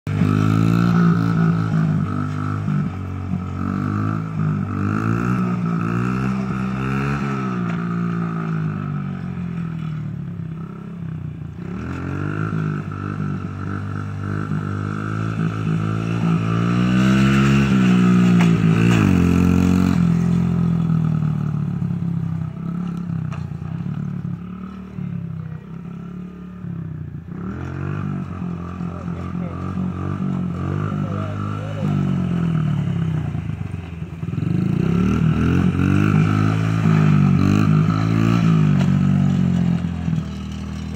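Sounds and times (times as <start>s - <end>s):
motorbike engine revving: 0.1s - 40.9s.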